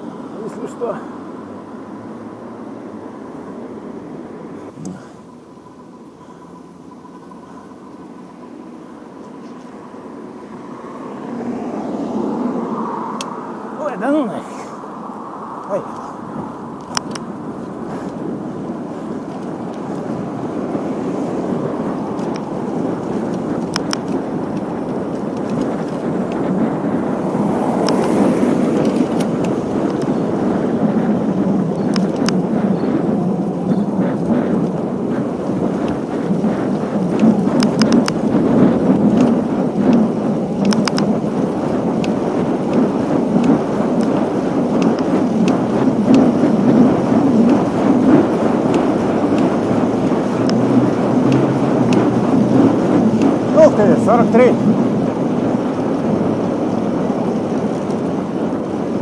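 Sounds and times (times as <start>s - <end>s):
wind and road noise: 0.0s - 59.0s
faint sharp clicks: 13.2s - 13.4s, 23.3s - 24.7s, 40.6s - 41.1s.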